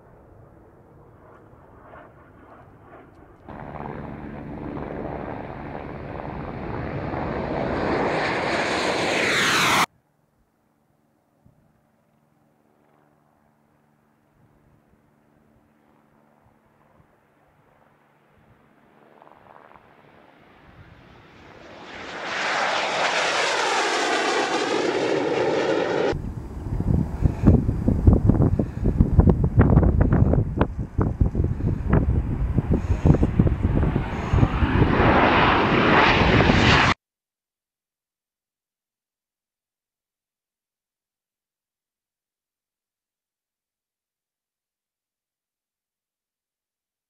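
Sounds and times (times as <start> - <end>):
jet engine flying past: 0.0 - 9.9, 11.9 - 37.0
wind buffeting microphone: 26.1 - 36.8.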